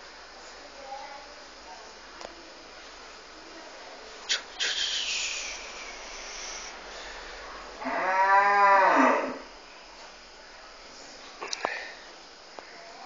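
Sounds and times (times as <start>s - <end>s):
moo-like animal call: 7.8s - 9.4s.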